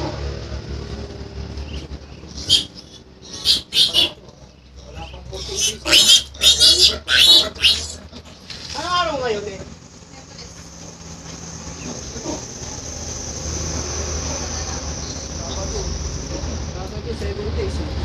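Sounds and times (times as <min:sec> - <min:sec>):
piglet squealing: 0:01.7 - 0:08.1.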